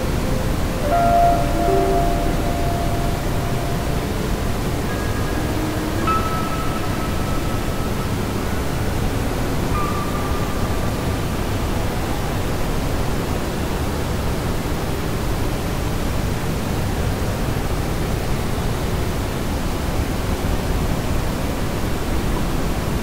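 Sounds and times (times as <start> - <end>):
faint high tone: 0.0 - 12.4.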